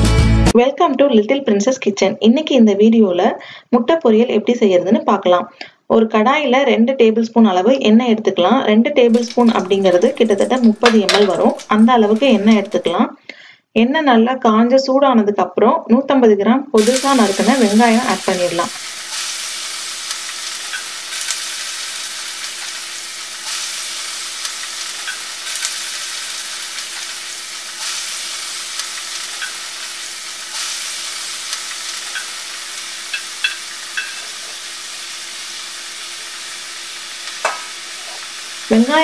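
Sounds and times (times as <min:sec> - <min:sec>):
onions sizzling in hot oil: 0:09.1 - 0:13.0, 0:16.8 - 0:39.0.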